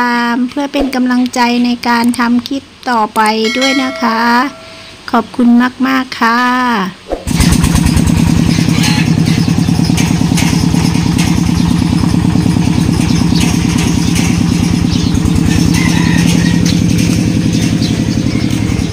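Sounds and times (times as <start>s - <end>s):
small engine running: 7.3s - 18.9s.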